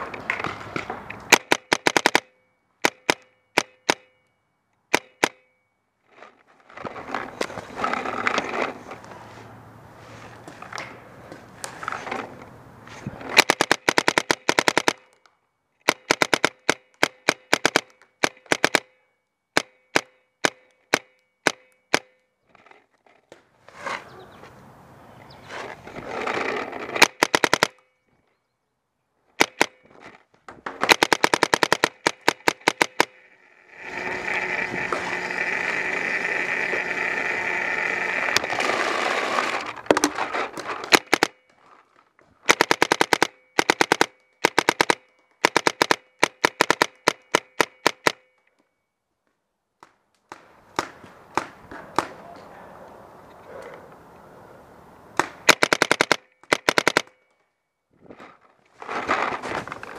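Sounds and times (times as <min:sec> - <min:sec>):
paintball markers firing: 0:00.3 - 0:04.2, 0:04.9 - 0:05.5, 0:13.2 - 0:22.3, 0:26.8 - 0:27.8, 0:29.4 - 0:30.0, 0:30.7 - 0:41.5, 0:42.4 - 0:48.4, 0:49.8 - 0:52.5, 0:55.2 - 0:57.3.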